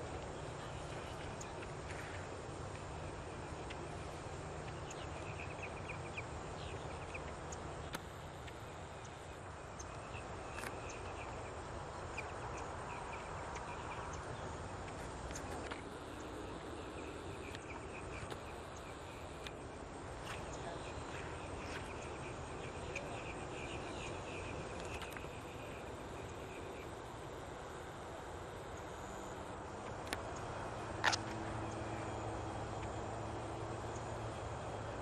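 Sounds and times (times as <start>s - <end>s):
insects chirping: 0.0s - 35.0s
low background noise: 0.0s - 35.0s.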